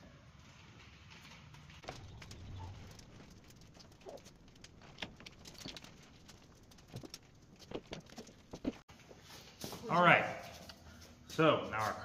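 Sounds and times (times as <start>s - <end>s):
engine parts and tools clicking: 1.1s - 8.9s.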